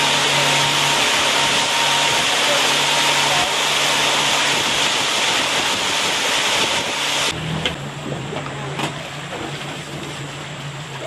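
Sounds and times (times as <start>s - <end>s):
boat engine rushing noise: 0.0s - 11.0s
engine hum: 0.0s - 11.0s.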